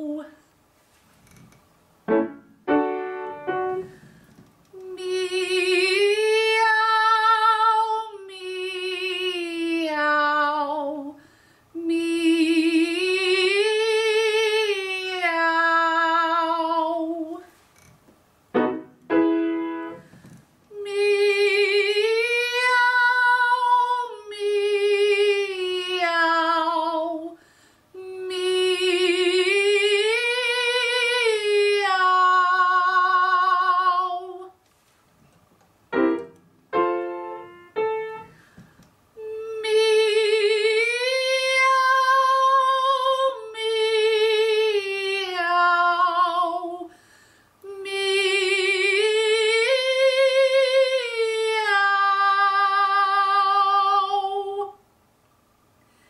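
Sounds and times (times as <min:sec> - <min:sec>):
woman singing with vibrato: 0:00.0 - 0:00.4, 0:04.7 - 0:17.6, 0:20.7 - 0:34.6, 0:39.1 - 0:47.0, 0:47.6 - 0:54.8
short piano notes: 0:02.1 - 0:04.0.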